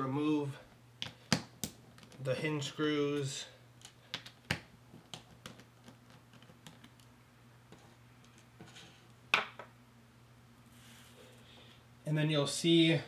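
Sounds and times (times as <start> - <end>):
faint steady low hum: 0.0 - 13.0.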